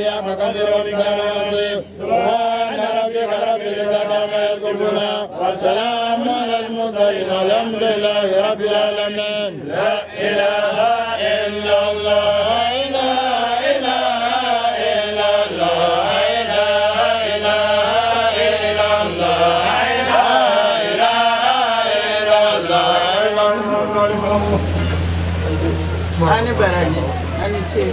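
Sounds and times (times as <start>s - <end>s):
man chanting a prayer: 0.0s - 10.1s, 22.6s - 27.9s.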